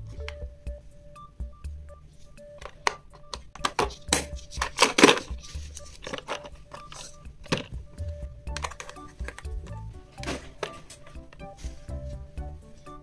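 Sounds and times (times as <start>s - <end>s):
background music: 0.0s - 13.0s
plastic box clicks and knocks: 2.6s - 5.4s, 7.4s - 7.8s, 8.5s - 9.6s.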